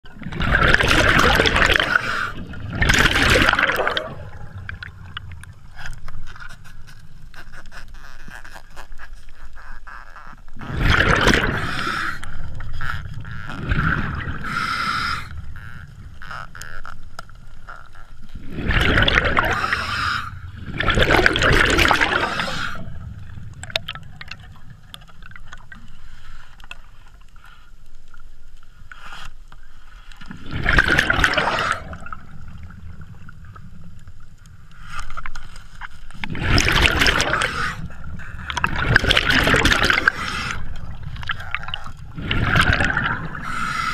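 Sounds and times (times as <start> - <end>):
bubbles rushing underwater: 0.2 - 5.6, 10.6 - 14.6, 18.4 - 19.9, 20.5 - 25.8, 30.3 - 34.0, 36.2 - 43.8
diver breathing through regulator: 11.4 - 13.0, 13.9 - 15.8, 19.4 - 20.6, 22.0 - 23.1, 37.1 - 38.6, 39.7 - 41.0, 43.0 - 43.9.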